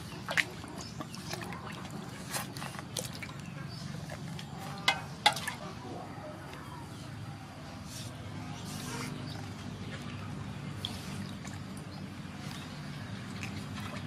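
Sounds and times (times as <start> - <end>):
low background hum: 0.0 - 14.0
water splashing in metal basin: 4.4 - 5.8.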